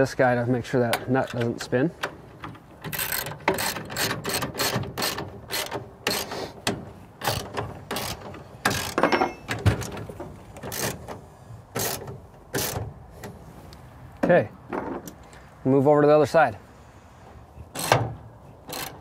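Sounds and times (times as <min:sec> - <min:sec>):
ratchet wrench clicking: 0:02.9 - 0:06.3, 0:07.2 - 0:09.0, 0:17.7 - 0:18.0, 0:18.6 - 0:19.0.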